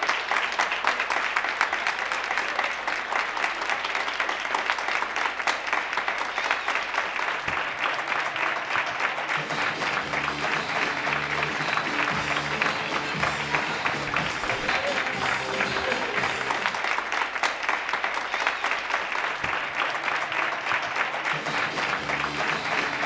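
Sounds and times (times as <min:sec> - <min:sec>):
crowd clapping: 0:00.0 - 0:23.0
music with low notes: 0:09.6 - 0:16.7.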